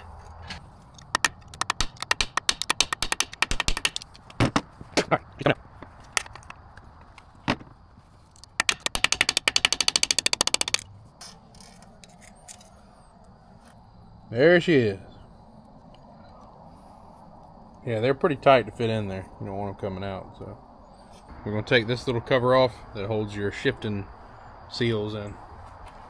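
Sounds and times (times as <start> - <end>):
ratchet wrench clicking: 1.0 - 4.3, 8.6 - 10.9.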